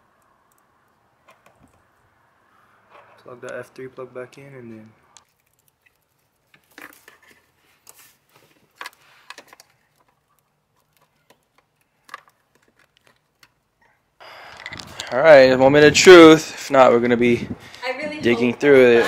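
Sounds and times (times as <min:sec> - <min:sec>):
faint clicks and rustles: 0:04.7 - 0:15.1.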